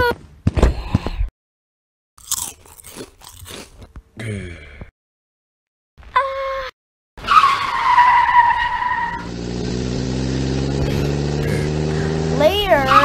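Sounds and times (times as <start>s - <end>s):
car tyres screeching: 7.2s - 13.0s
car engine running: 9.1s - 13.0s.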